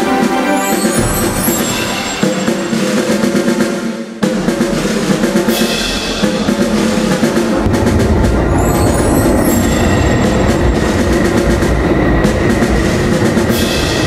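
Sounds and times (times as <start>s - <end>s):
snare drum rolls: 0.0s - 14.0s
bass drum: 4.2s - 14.0s
sustained low notes: 6.2s - 14.0s
deep rumble: 6.6s - 14.0s.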